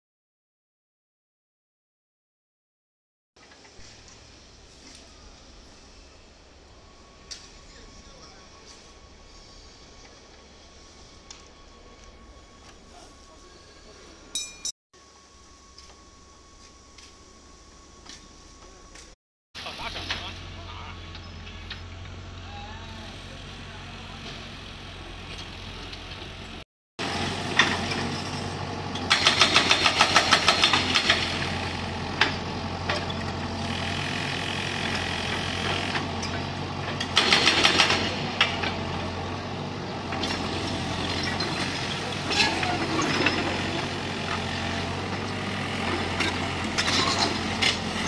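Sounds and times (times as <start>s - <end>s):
diesel engine running: 17.6s - 48.0s
hydraulic breaker hammering concrete: 29.0s - 31.5s, 37.0s - 38.8s.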